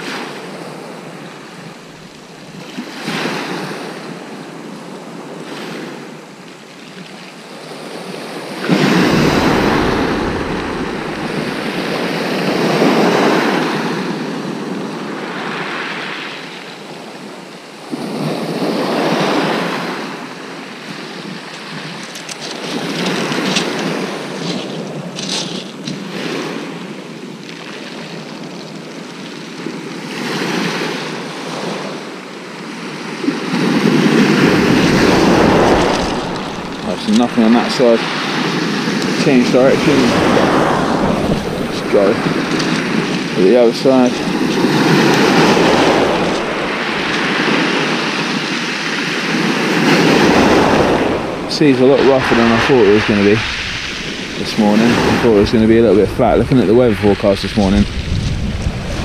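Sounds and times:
wind gust on microphone: 0:08.0 - 0:15.5, 0:32.9 - 0:59.0
waves breaking on shingle: 0:08.6 - 0:13.5, 0:21.5 - 0:26.7, 0:33.3 - 0:59.0.

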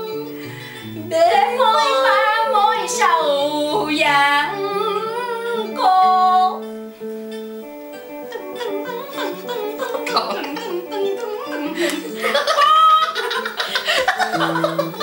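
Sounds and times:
backing music track: 0:00.0 - 0:15.0
woman singing karaoke: 0:01.0 - 0:06.8, 0:08.3 - 0:13.3.

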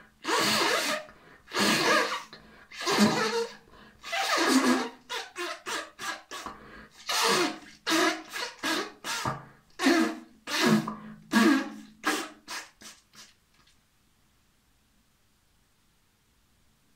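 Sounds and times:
man blowing nose: 0:00.2 - 0:13.4.

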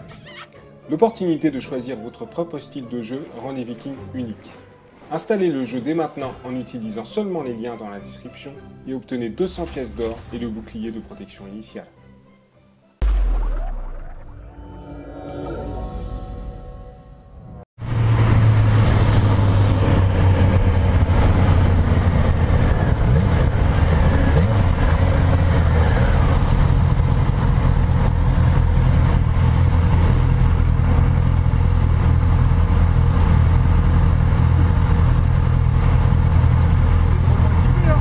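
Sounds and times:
road noise: 0:17.8 - 0:38.0.

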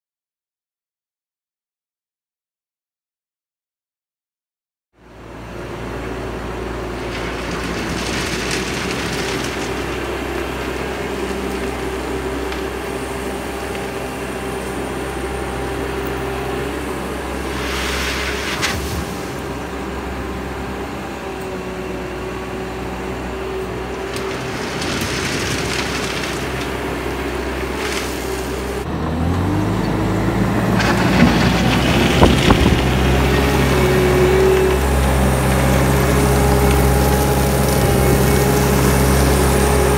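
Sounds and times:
diesel engine running: 0:05.0 - 0:39.9
gravel crunching under tracks: 0:05.9 - 0:22.0, 0:23.3 - 0:39.9.

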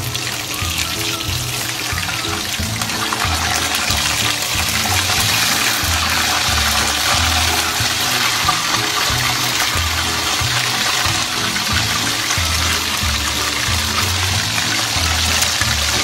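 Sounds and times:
background music: 0:00.0 - 0:16.0
pork chops sizzling in oil: 0:00.0 - 0:16.0.

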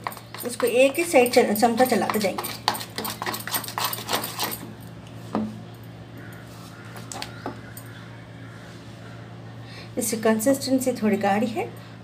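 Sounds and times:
spoon stirring batter in bowl: 0:00.0 - 0:04.7.

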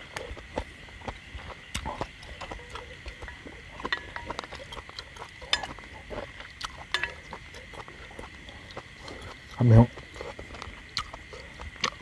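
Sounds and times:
chewing: 0:00.0 - 0:12.0.

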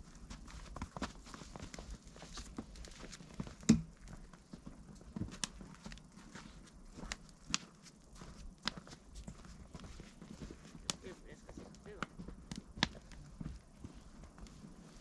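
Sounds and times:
footsteps in snow: 0:00.0 - 0:15.0.

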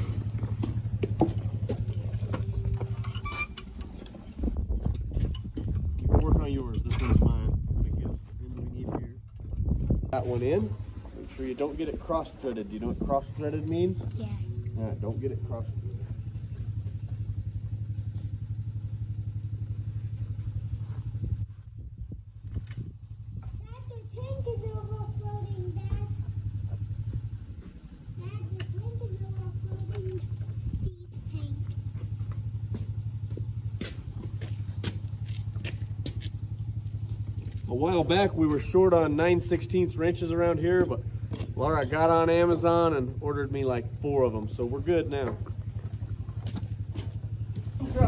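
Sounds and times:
low rumble: 0:00.0 - 0:13.5, 0:14.2 - 0:31.0
engine idling: 0:00.0 - 0:48.0
hand tools clinking on metal: 0:40.6 - 0:42.8.

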